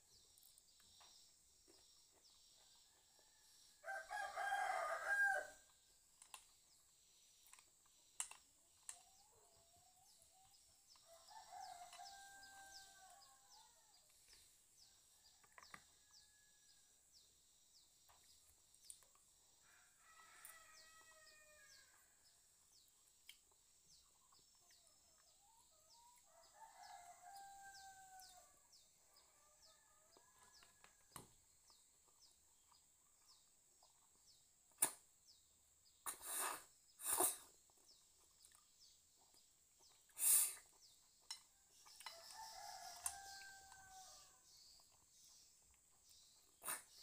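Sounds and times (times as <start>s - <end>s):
rooster crowing: 3.2s - 5.6s, 11.0s - 13.9s, 19.6s - 22.0s, 26.3s - 28.6s, 42.1s - 44.4s.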